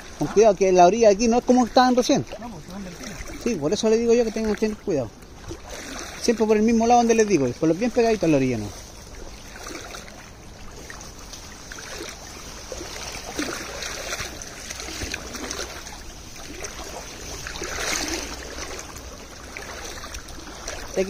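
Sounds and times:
river water rushing: 0.0s - 21.0s.

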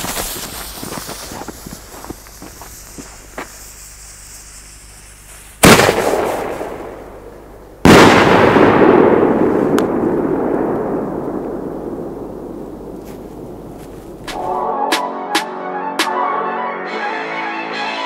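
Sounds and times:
firework bangs: 0.0s - 14.6s
rumbling echo: 5.7s - 14.6s.

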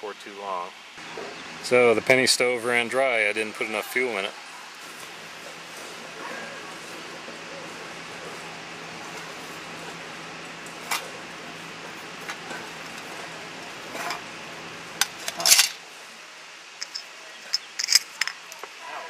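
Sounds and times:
steady hiss: 0.0s - 19.0s
metal cans clinking: 15.0s - 15.8s, 16.8s - 18.4s.

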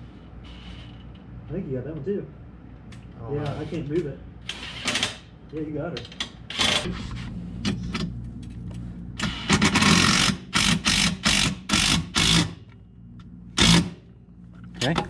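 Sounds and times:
low steady hum: 5.3s - 11.1s, 11.7s - 15.0s.

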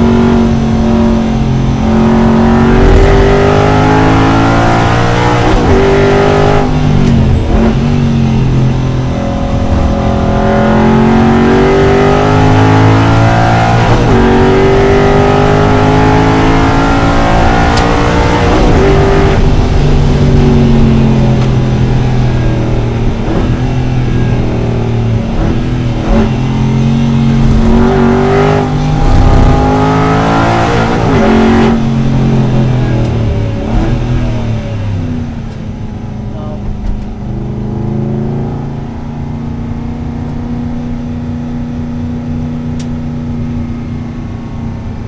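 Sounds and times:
race car engine revving: 0.0s - 43.6s
quick gearshifts: 21.4s - 29.9s.

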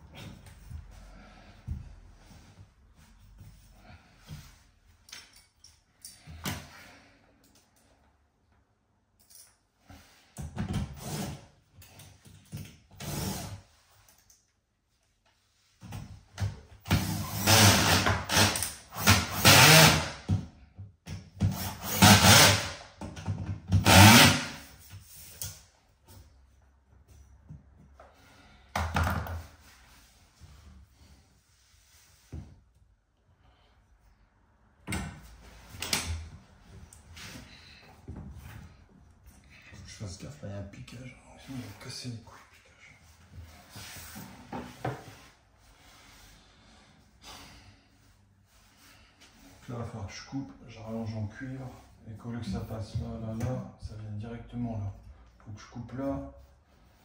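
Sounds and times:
cordless drill running: 17.0s - 20.1s, 21.6s - 22.7s, 23.8s - 24.5s.

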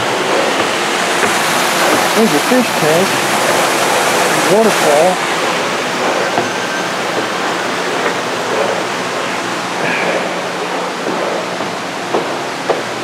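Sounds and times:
waterfall pouring into a pool: 0.1s - 5.6s.

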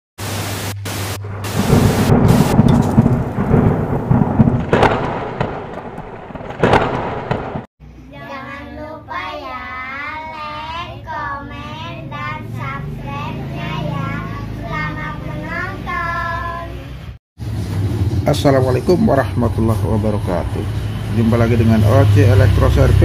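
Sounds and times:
hissing television static: 0.2s - 2.7s
low rumbling: 0.2s - 7.7s
sharp hits: 0.8s - 7.7s
girls singing together: 8.3s - 16.9s.

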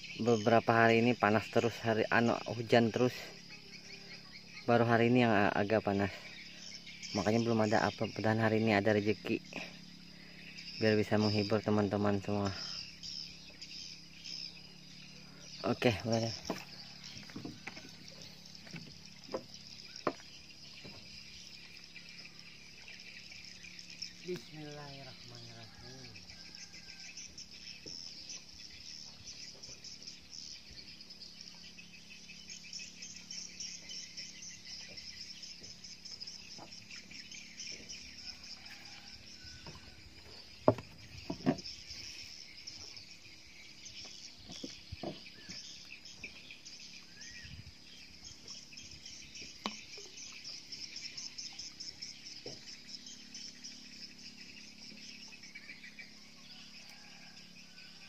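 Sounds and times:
insects chirping: 0.0s - 58.0s
knocks on wooden planks: 16.4s - 18.0s, 18.6s - 21.1s, 40.6s - 41.7s, 44.4s - 45.6s.

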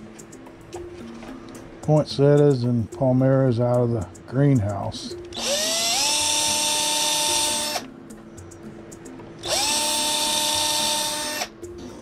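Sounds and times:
electric power tool whining: 5.4s - 7.8s, 9.4s - 11.5s.

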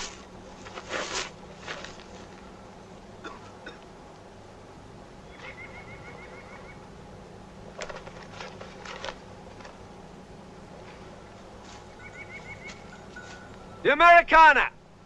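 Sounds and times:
small bird trilling: 11.9s - 13.8s.

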